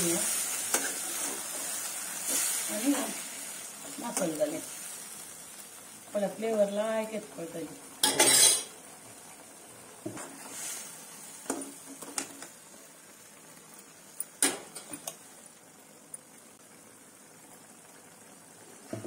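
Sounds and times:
metal ladle scraping a metal pan: 8.0 - 8.7.

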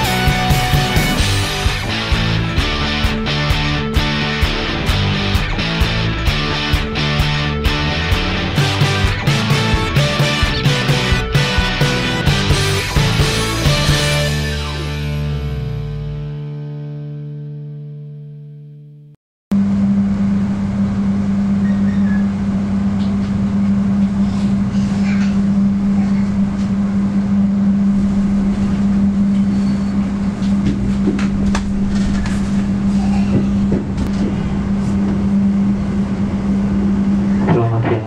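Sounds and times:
train low hum and rolling noise: 19.7 - 38.0.

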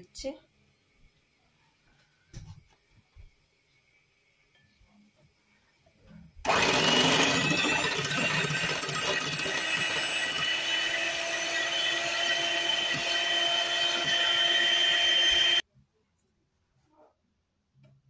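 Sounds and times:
electric hand mixer whisking: 6.5 - 15.6.

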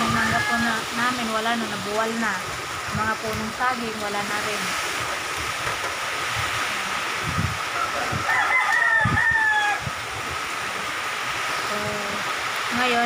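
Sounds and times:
rooster crowing: 0.0 - 1.1, 7.6 - 10.0
gusts buffeting microphone: 0.0 - 13.0
wind and rain: 0.0 - 13.0.

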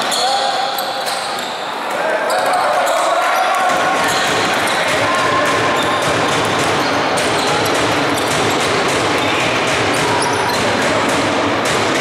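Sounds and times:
shoe squeaks: 0.0 - 4.9, 5.5 - 6.1, 6.7 - 8.6, 9.2 - 10.8
sports hall background noise: 0.0 - 12.0
basketball bouncing on wooden floor: 3.7 - 12.0.

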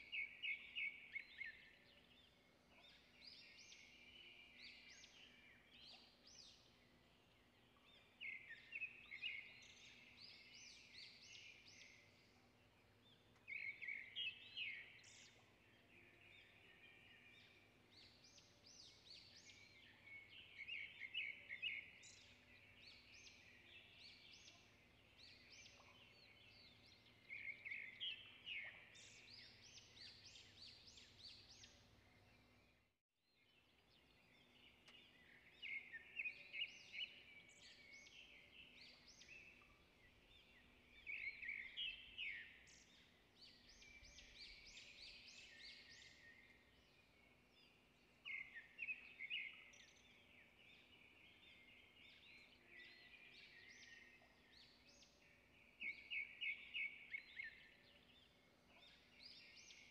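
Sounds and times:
birds chirping: 33.9 - 59.9.

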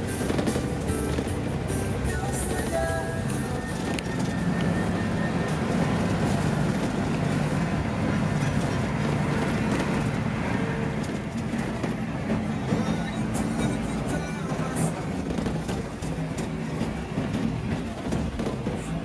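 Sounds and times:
bus diesel engine running: 0.0 - 19.0
road noise: 0.0 - 19.0.

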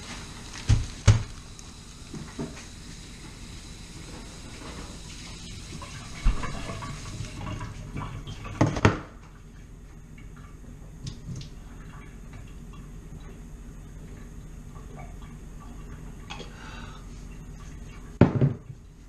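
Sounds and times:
container knocking on counter: 18.2 - 18.7.

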